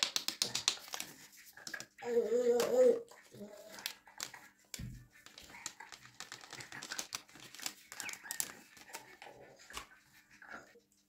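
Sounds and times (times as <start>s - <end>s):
paper packet crinkling: 5.2s - 9.8s.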